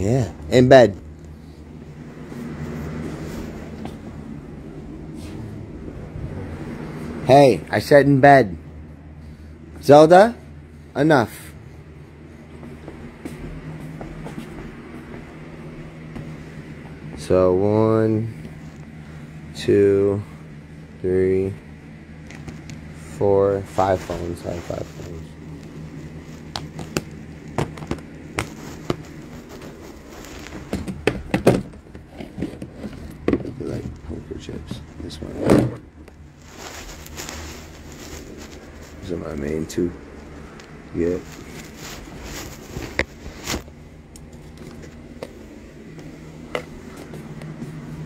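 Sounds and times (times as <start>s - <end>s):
low steady hum: 0.0s - 48.0s
short rustle: 23.6s - 27.3s, 28.3s - 30.7s, 36.2s - 48.0s.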